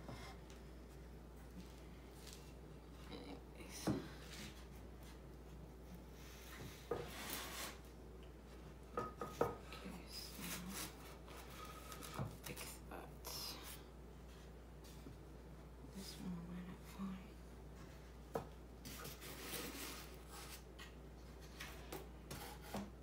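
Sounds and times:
wood scraping on wood: 0:06.4 - 0:07.9.

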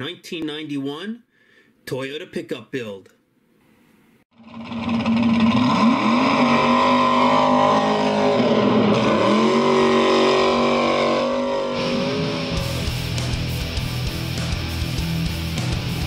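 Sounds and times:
vehicle engine revving high: 0:04.4 - 0:12.9.

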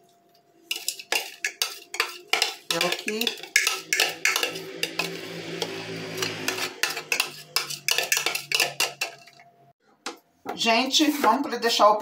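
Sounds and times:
metal spoon scraping plastic bowl: 0:00.7 - 0:09.4.

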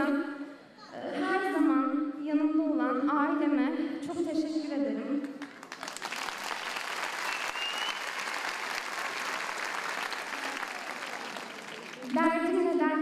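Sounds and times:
audience applauding: 0:05.4 - 0:12.6
short high whistle: 0:07.3 - 0:08.1.

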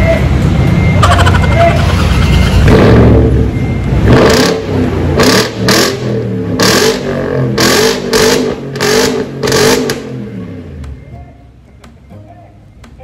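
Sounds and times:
engine revving through exhaust: 0:01.8 - 0:10.6.

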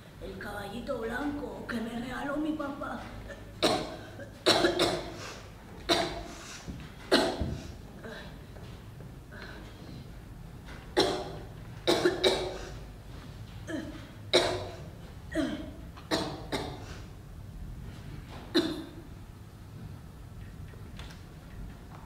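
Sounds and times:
person coughing: 0:03.3 - 0:06.3, 0:07.1 - 0:08.4, 0:11.0 - 0:12.8, 0:13.6 - 0:17.0, 0:18.5 - 0:19.0.

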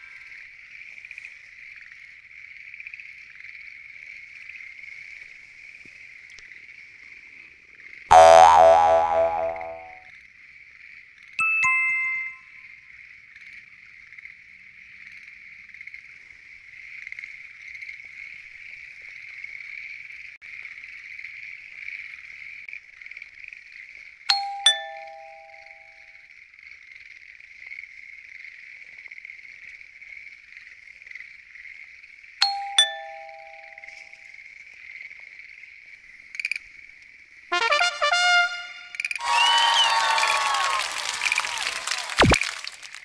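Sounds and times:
two-note falling chime: 0:08.1 - 0:10.0
tree frogs calling: 0:33.0 - 0:37.4.

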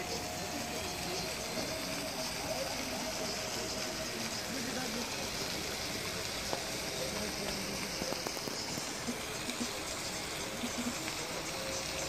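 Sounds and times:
steady outdoor hiss: 0:00.0 - 0:12.0
faint ticks: 0:03.0 - 0:12.0.

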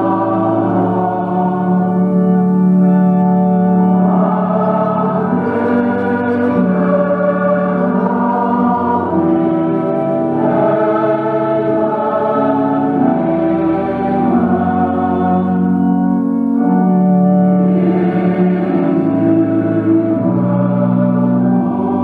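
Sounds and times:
congregation singing: 0:00.0 - 0:22.0
organ accompaniment: 0:00.0 - 0:22.0.

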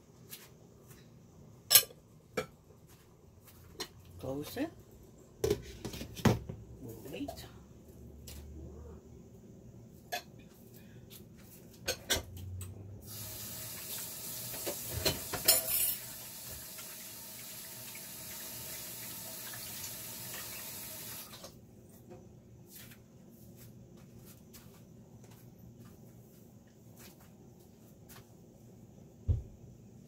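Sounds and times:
kitchen tap running: 0:13.0 - 0:21.5.

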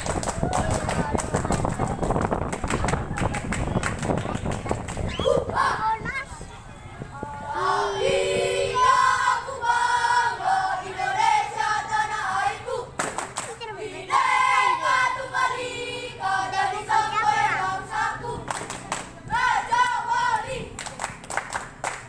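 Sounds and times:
boys chanting in unison: 0:07.1 - 0:20.8.

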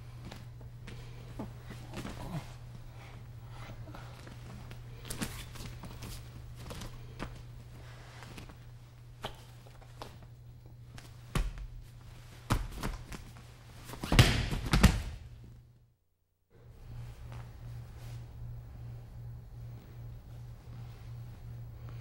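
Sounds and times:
steady low hum: 0:00.0 - 0:22.0
people thudding on training mat: 0:14.0 - 0:15.2.

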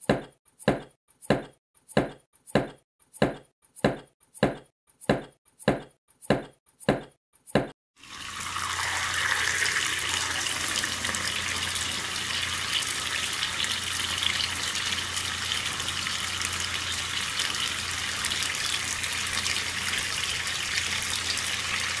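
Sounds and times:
knife chopping on wooden board: 0:00.0 - 0:07.7
water pouring into a basin: 0:08.0 - 0:22.0.

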